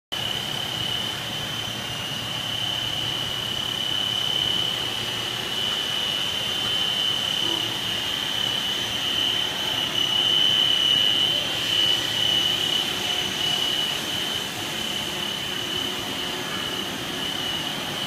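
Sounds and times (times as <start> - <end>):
high-pitched whine: 0.1 - 18.0
machinery drone: 0.2 - 18.0.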